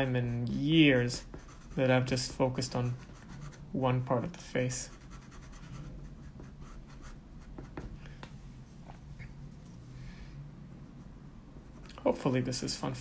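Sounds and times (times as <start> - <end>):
pencil scratching on paper: 0.0 - 3.7, 4.7 - 7.9.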